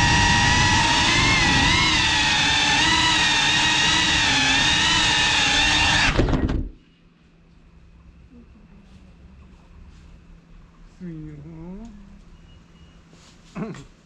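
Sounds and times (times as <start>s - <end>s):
drone motors whining: 0.0s - 6.7s
motors clicking spinning down: 0.0s - 6.7s
faint hum: 6.1s - 14.0s.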